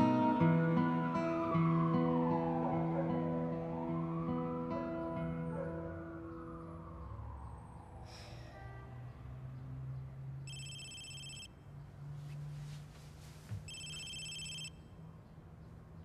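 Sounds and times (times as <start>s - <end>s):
electronic telephone ring: 10.5s - 11.5s, 13.7s - 14.9s.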